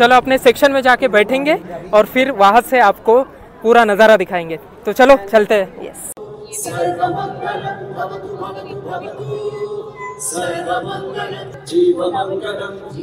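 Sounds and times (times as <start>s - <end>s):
many voices chanting: 6.2s - 13.0s.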